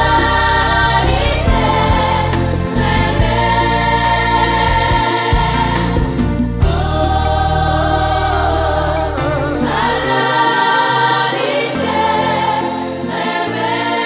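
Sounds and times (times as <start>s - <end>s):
gospel singing with choir: 0.0s - 14.0s
band playing: 0.8s - 12.0s.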